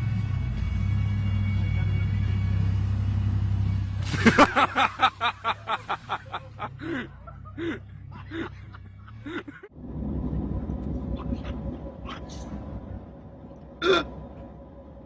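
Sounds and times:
dumper engine running: 0.0 - 15.0
person laughing: 4.2 - 9.7.

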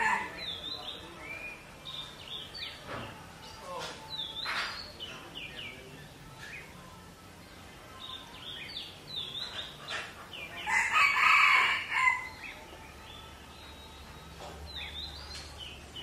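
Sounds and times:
rooster crowing: 10.7 - 12.3.

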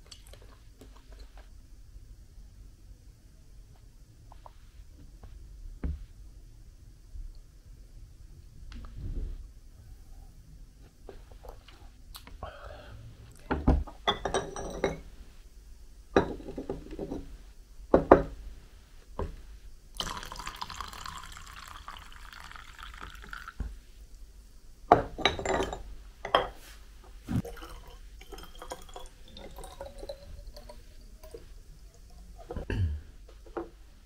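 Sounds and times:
ceramic and glass vessels clinking: 14.1 - 15.0, 24.9 - 26.6
liquid pouring into a jar: 20.0 - 23.6, 27.4 - 32.0.

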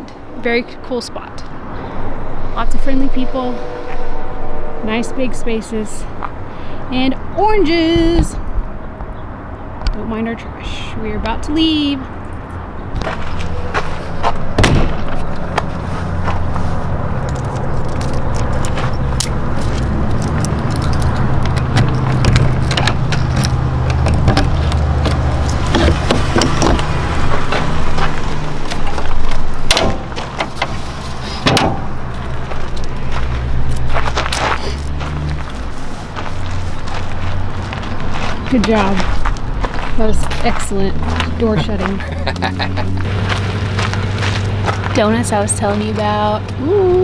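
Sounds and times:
low engine hum: 0.0 - 47.0
keys jingling: 17.2 - 25.8.

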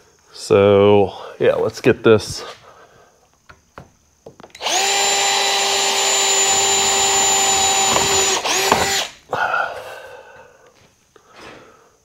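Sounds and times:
power drill drilling into metal: 4.6 - 9.2.

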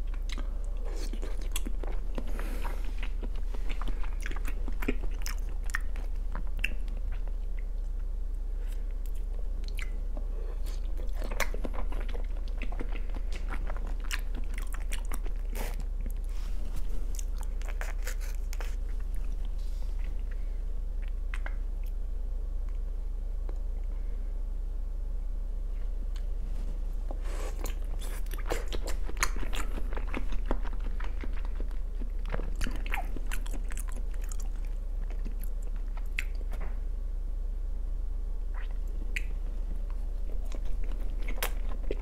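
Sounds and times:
wet chewing mouth sounds: 0.0 - 7.9, 8.6 - 20.4, 21.0 - 22.0, 27.1 - 36.6, 38.5 - 42.0.

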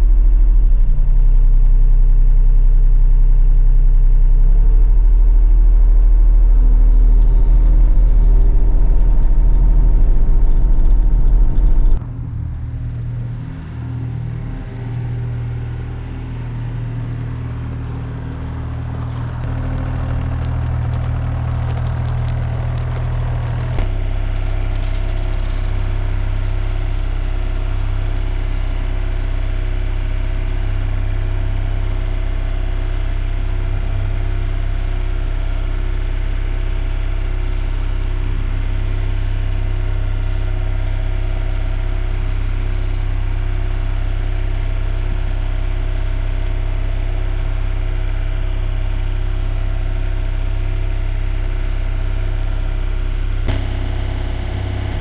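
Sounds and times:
engine running steadily: 0.0 - 55.0.

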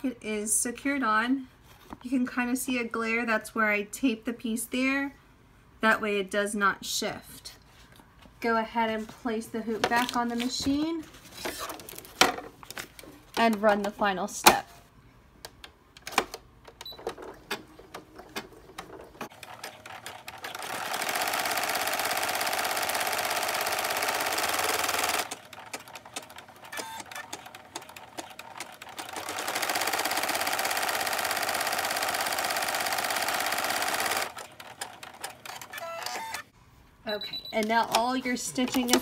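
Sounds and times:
machine clicks: 15.4 - 36.4
embroidery machine stitching: 18.7 - 36.4.

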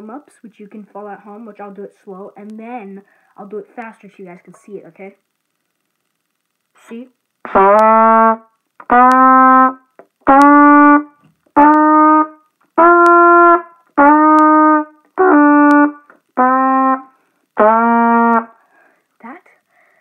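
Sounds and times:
trumpet notes: 7.4 - 18.6.

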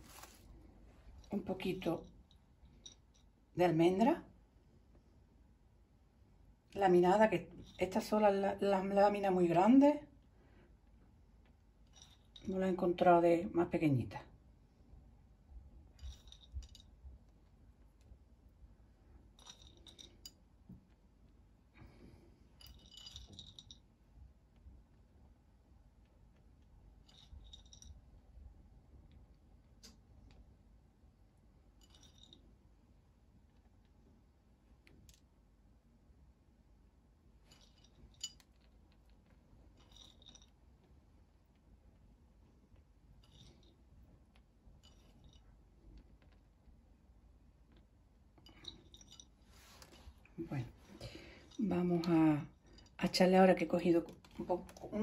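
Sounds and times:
soft rustle: 0.0 - 1.4, 47.8 - 51.7.

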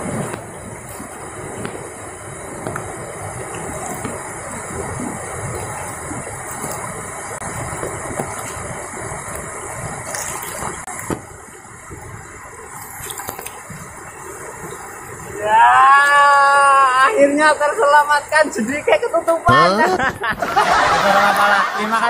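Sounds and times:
river rushing over rocks: 0.0 - 19.7.

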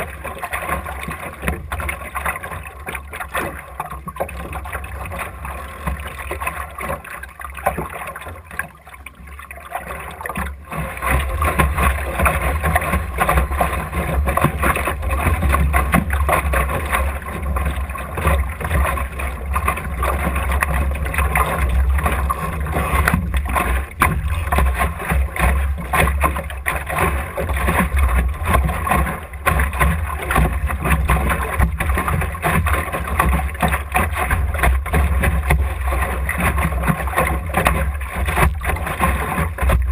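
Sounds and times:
water splashing along boat hull: 0.0 - 39.9
wind rumble on microphone: 10.2 - 39.9.

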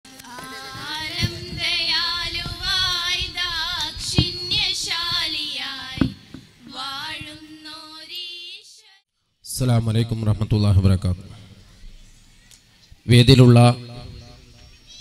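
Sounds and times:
girls singing into a microphone: 0.1 - 8.8
sharp knocks: 0.8 - 5.4, 6.0 - 6.5.

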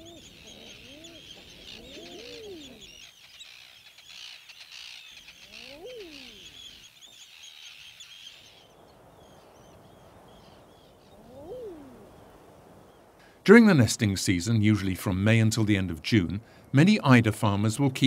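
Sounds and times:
eider ducks cooing: 0.0 - 3.0, 5.4 - 6.5
small birds twittering: 0.0 - 13.2.

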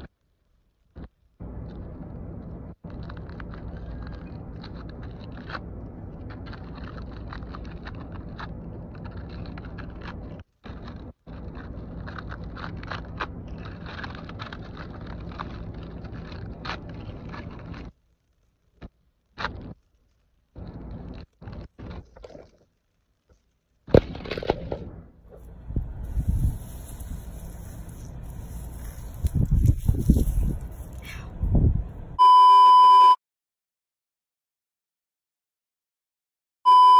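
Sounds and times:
steady low rumble: 0.9 - 18.4, 24.0 - 32.2
foil crumpling: 2.8 - 18.8, 25.3 - 31.2.

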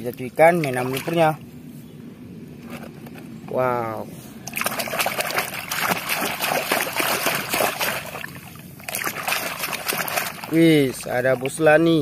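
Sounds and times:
toy swished in shallow water: 4.5 - 10.6.

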